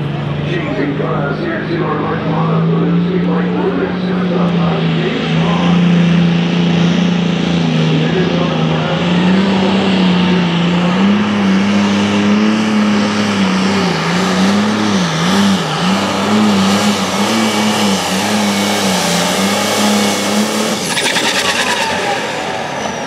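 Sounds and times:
tractor engine running flat out: 0:15.7 - 0:23.0.

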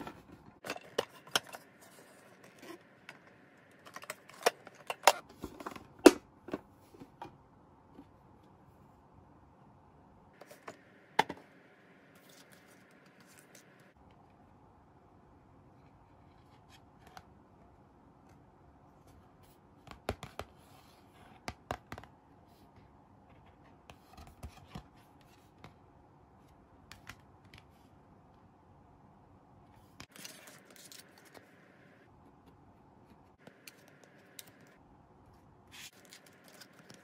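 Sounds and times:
pages turning: 0:12.1 - 0:13.8, 0:30.0 - 0:31.8, 0:35.8 - 0:37.0
paper crackles and clicks: 0:30.0 - 0:31.6, 0:35.8 - 0:37.0.

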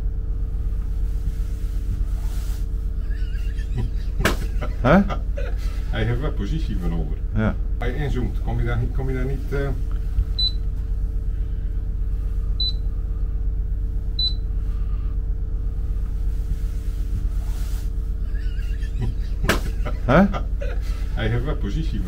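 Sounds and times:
boat engine droning: 0:00.0 - 0:22.0
short high beeps: 0:14.2 - 0:14.4.

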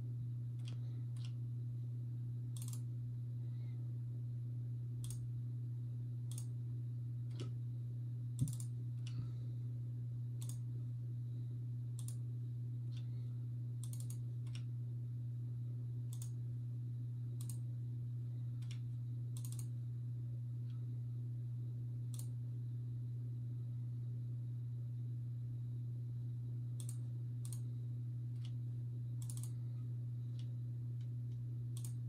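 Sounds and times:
steady low hum: 0:00.0 - 0:32.0
computer mouse clicking: 0:00.6 - 0:01.4, 0:02.6 - 0:02.9, 0:05.0 - 0:05.2, 0:06.3 - 0:06.5, 0:07.3 - 0:07.6, 0:08.4 - 0:09.2, 0:10.4 - 0:10.6, 0:12.0 - 0:12.2, 0:13.8 - 0:14.7, 0:16.1 - 0:16.4, 0:17.4 - 0:17.6, 0:18.6 - 0:18.8, 0:19.4 - 0:19.7, 0:22.1 - 0:22.3, 0:26.8 - 0:27.7, 0:29.2 - 0:29.6, 0:30.3 - 0:32.0.

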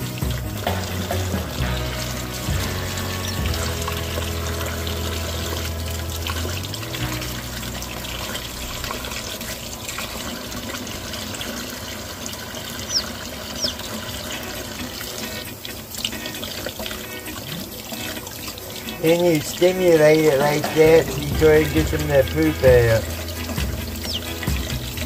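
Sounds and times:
faucet running: 0:00.0 - 0:25.0
water splashing on hands: 0:00.0 - 0:25.0
chick peeping: 0:12.8 - 0:13.9, 0:23.8 - 0:24.7.

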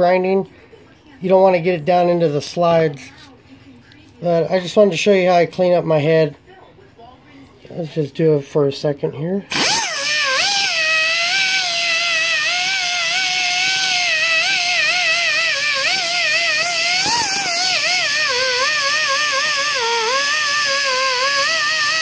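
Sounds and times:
die grinder whining: 0:09.5 - 0:22.0.

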